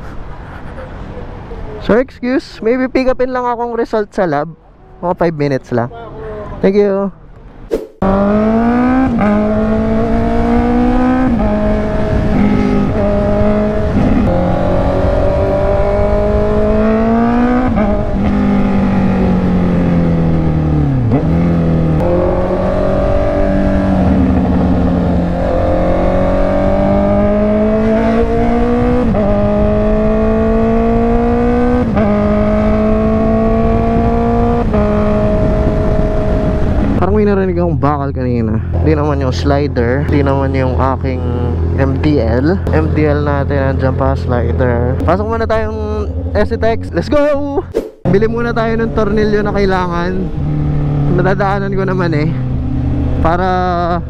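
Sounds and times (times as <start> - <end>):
wind and road rush: 0.0 - 54.0
motorcycle engine accelerating: 7.8 - 37.0, 40.1 - 54.0.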